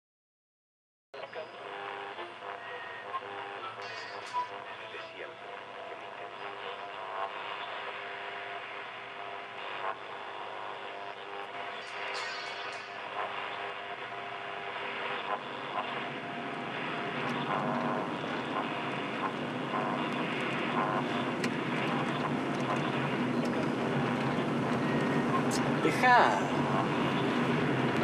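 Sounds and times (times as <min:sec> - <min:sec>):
radio static hiss: 0:01.2 - 0:28.0
car running on road: 0:15.6 - 0:28.0.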